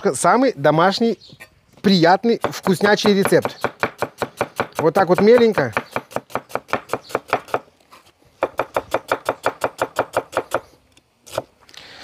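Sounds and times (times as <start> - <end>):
knife chopping on a board: 2.4 - 7.6.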